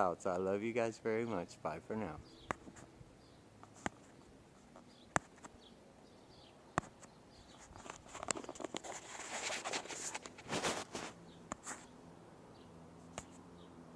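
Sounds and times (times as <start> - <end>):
rubbing over phone microphone: 2.5 - 3.0, 3.6 - 5.6, 6.8 - 11.9.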